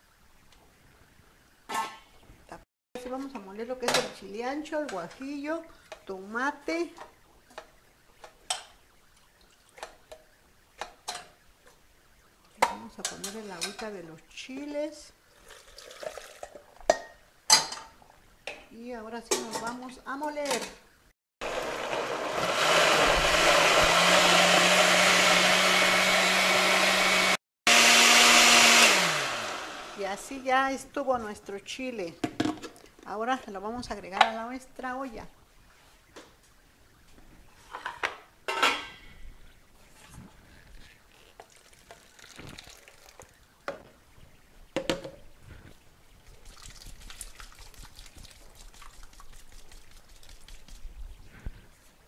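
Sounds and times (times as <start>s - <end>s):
blender motor whirring: 21.4s - 30.3s
sauce dribbling into broth: 41.4s - 43.4s, 46.3s - 50.3s.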